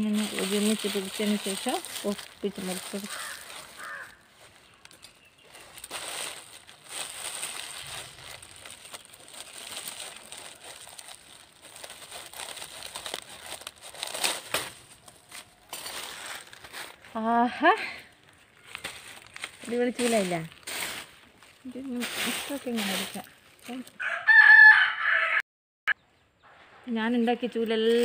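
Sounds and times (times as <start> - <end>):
broom sweeping gravelly soil: 0.0 - 4.7, 5.4 - 17.0, 18.8 - 23.9.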